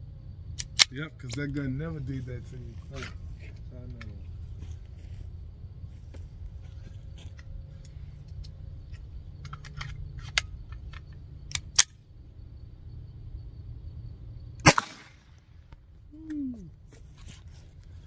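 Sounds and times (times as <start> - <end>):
pistol metallic clicks and rattles: 0.6 - 1.5, 7.4 - 12.0.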